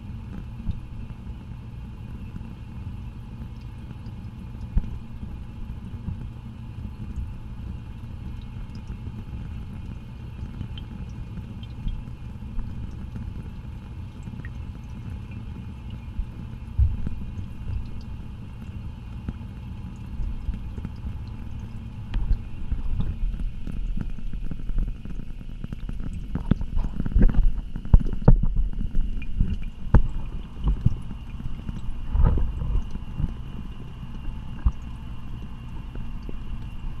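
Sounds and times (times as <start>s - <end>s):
underwater rumble: 11.4s - 37.0s.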